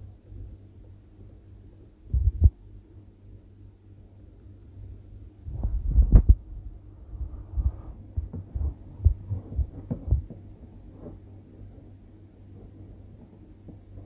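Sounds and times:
low electrical hum: 0.0s - 14.0s
microphone handling thumps: 5.5s - 6.6s, 7.2s - 11.2s.

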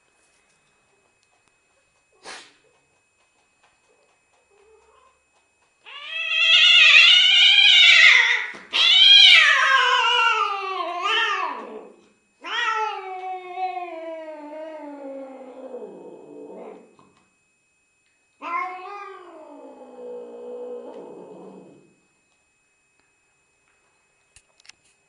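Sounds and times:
cat yowling: 5.9s - 16.9s, 18.4s - 21.8s.

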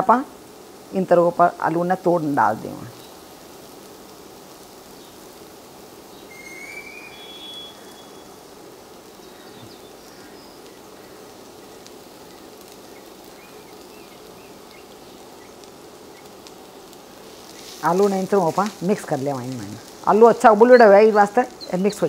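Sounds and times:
food sizzling in oil: 0.0s - 22.0s
high chirping call: 6.2s - 8.4s.

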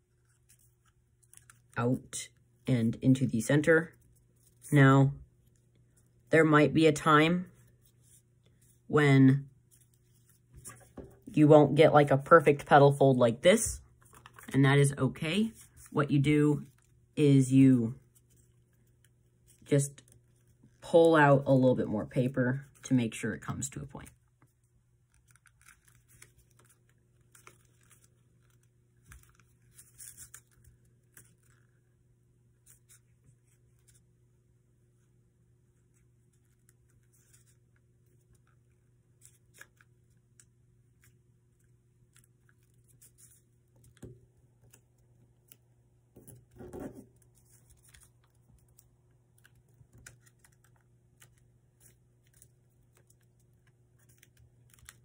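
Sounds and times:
paper crinkling and rustling: 0.0s - 1.8s, 9.6s - 11.3s, 13.9s - 14.6s, 24.0s - 31.9s, 35.9s - 55.0s
low steady hum: 0.0s - 55.0s.

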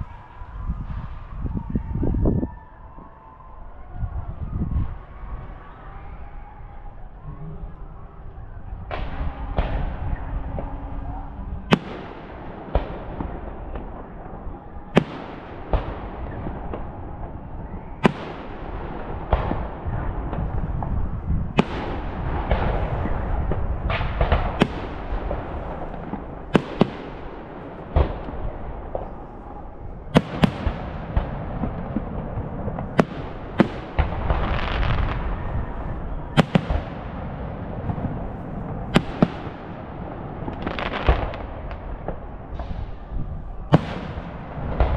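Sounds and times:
low rumble: 3.9s - 14.9s, 27.2s - 44.9s
fireworks bursting with sharp bangs: 8.7s - 44.9s.

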